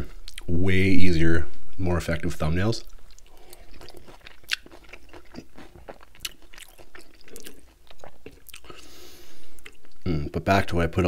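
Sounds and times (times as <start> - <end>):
wet crunchy chewing: 2.7 - 9.0.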